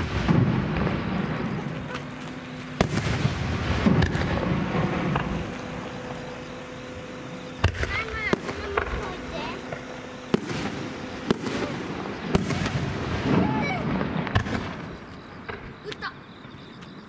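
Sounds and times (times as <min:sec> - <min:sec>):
firework shells bursting: 0:00.0 - 0:16.0.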